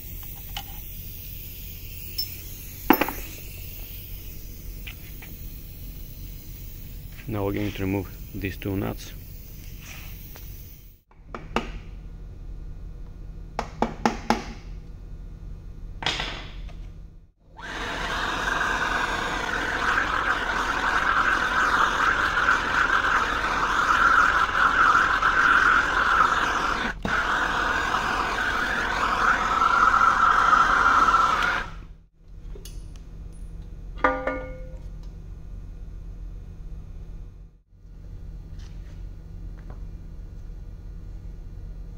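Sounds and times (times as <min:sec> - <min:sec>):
gas torch hissing: 0:00.0 - 0:11.1, 0:17.6 - 0:31.8
metallic clink: 0:02.1 - 0:03.4.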